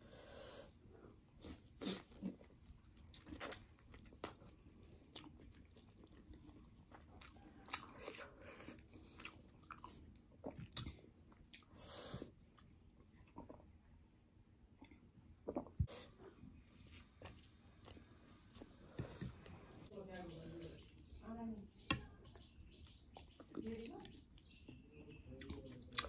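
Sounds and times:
chewing and biting food: 1.4s - 13.8s, 16.8s - 19.8s, 25.4s - 26.0s.

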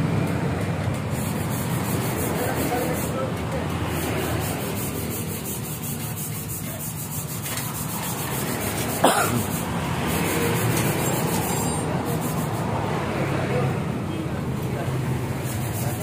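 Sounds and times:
metal rubbing on metal: 1.1s - 12.8s, 15.2s - 16.0s.

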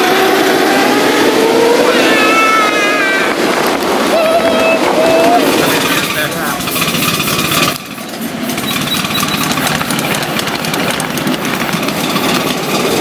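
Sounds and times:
steam locomotive clatter: 3.3s - 13.0s.

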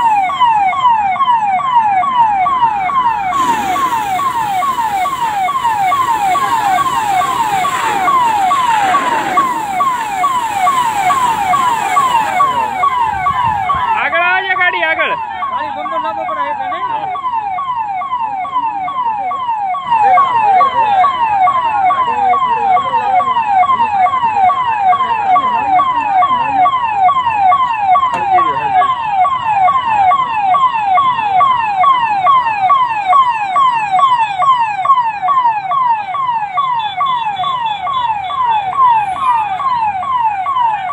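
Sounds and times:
electronic siren sweeping: 0.0s - 40.9s.

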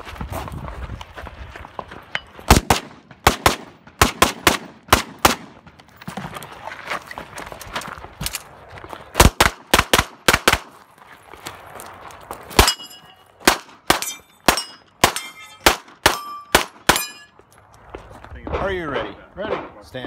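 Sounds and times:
pistol shots: 2.5s - 5.7s, 9.2s - 10.7s, 13.4s - 17.2s
steel plate target ringing: 12.6s - 17.4s.

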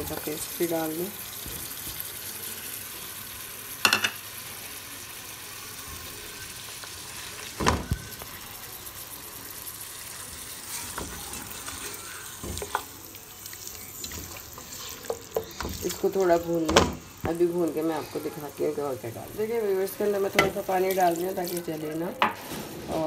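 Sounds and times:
meat sizzling in hot oil: 0.0s - 22.4s
spatula scraping a metal pot: 13.7s - 16.2s.

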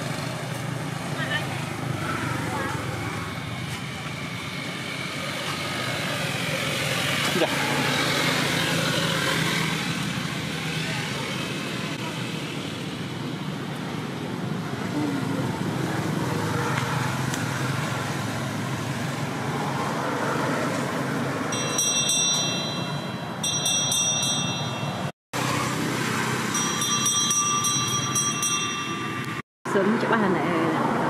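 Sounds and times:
high ringing tones: 21.5s - 25.1s, 26.3s - 29.4s.

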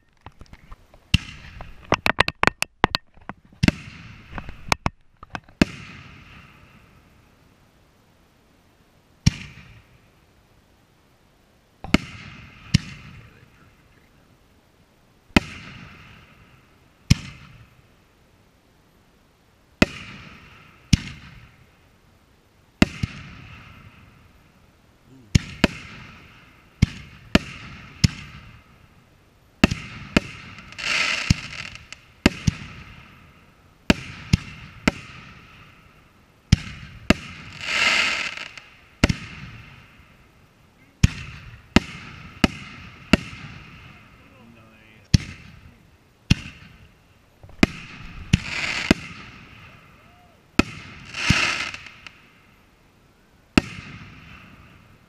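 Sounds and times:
firework shells bursting: 0.0s - 6.7s, 46.3s - 52.3s
noisy firework swell: 41.1s - 52.6s.

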